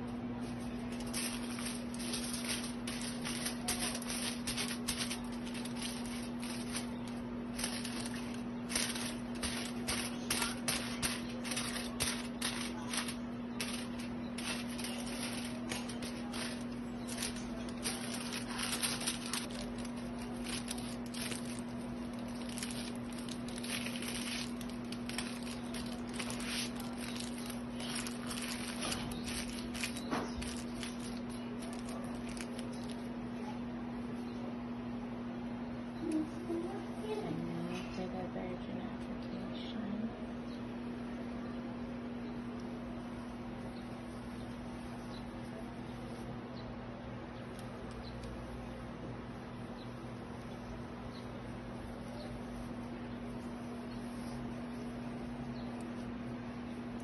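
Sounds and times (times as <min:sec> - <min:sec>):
steady low hum: 0:00.0 - 0:57.0
aluminium foil crinkling: 0:00.3 - 0:33.2, 0:47.3 - 0:57.0.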